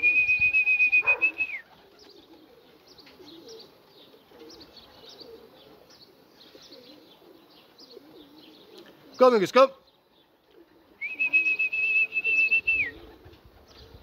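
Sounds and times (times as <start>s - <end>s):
long steady whistle: 0.0s - 1.6s, 11.0s - 12.9s
pigeons cooing: 0.0s - 9.2s, 10.1s - 14.0s
small birds chirping: 0.0s - 14.0s.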